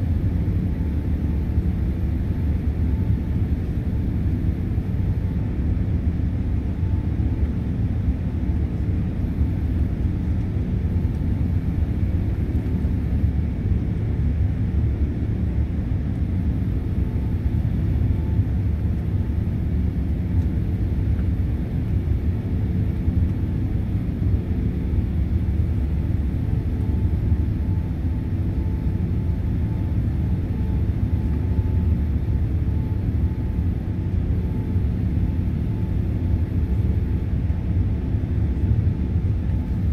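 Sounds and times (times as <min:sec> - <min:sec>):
faint steady whine: 0:00.0 - 0:39.9
jet engine cabin rumble: 0:00.0 - 0:39.9.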